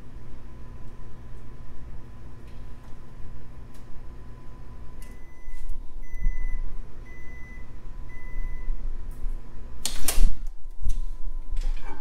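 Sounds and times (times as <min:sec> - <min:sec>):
microwave oven humming: 0:00.0 - 0:12.0
microwave beeps: 0:05.0 - 0:08.8.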